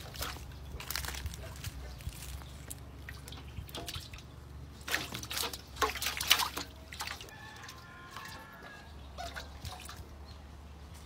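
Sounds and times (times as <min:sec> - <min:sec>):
fish splashing in a metal bowl: 0:02.9 - 0:10.2.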